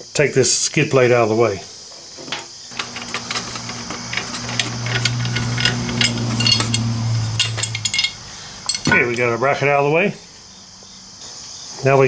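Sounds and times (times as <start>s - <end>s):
low hum: 2.7s - 8.9s
wrench and bolts clinking: 2.7s - 9.2s.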